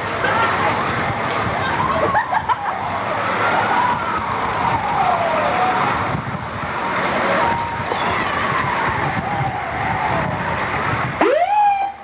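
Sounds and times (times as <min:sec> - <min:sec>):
ambulance siren wailing: 0:01.5 - 0:12.0.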